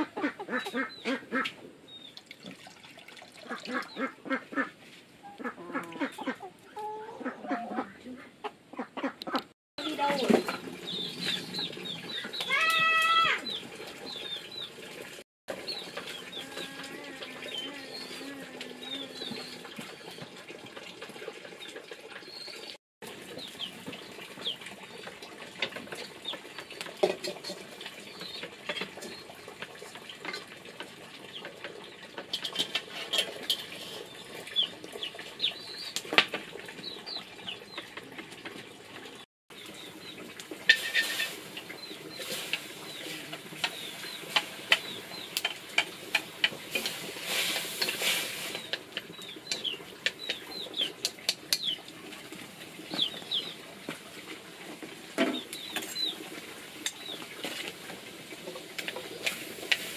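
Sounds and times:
chickens chirping: 0.0 - 2.2, 3.5 - 14.8, 15.5 - 20.4, 23.2 - 25.1, 34.0 - 36.1, 41.0 - 51.9, 52.8 - 53.7, 55.2 - 56.3
chicken drawn-out call: 12.0 - 13.6.

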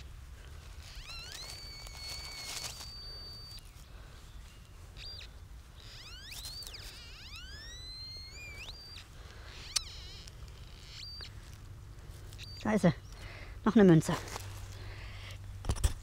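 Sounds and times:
metal detector signal tone: 0.9 - 3.6, 5.0 - 11.3.

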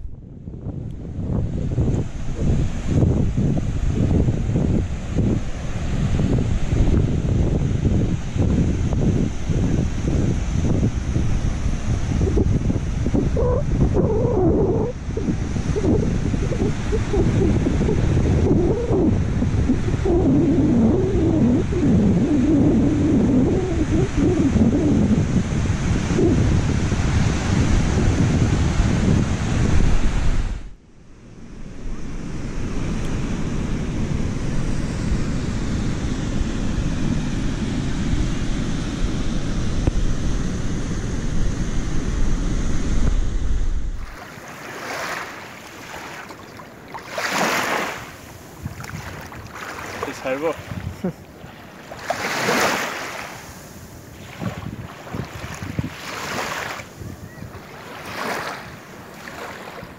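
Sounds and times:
wind rumbling on microphone: 0.0 - 59.9
small waves washing in: 31.5 - 59.9
surf breaking on beach: 31.7 - 59.9.

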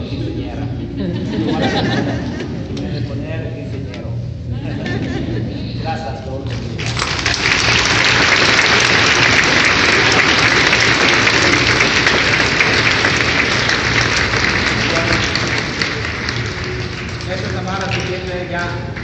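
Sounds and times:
crowd applauding: 6.5 - 19.0.

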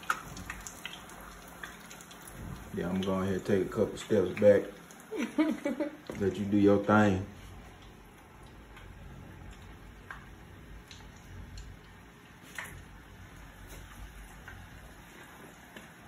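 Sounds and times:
fries sizzling in hot oil: 0.0 - 16.0.

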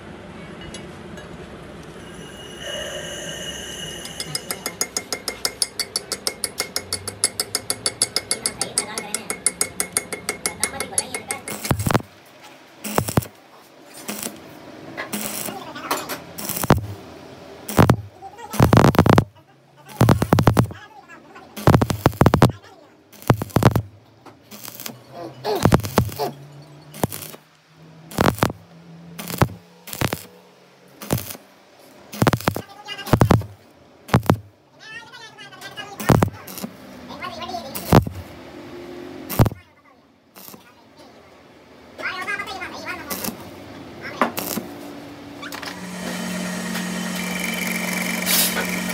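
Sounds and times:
metal tool tapping steel pin: 4.0 - 11.7
welding arc crackling: 11.4 - 12.1, 12.8 - 13.4, 14.0 - 17.0, 17.7 - 19.3, 19.9 - 20.8, 21.6 - 23.9, 24.5 - 26.3, 27.0 - 27.5, 28.1 - 28.6, 29.2 - 31.5, 32.1 - 34.5, 36.0 - 36.8, 37.6 - 38.3, 39.3 - 39.6, 40.4 - 40.7, 43.0 - 43.5, 44.3 - 44.8, 45.8 - 48.9.

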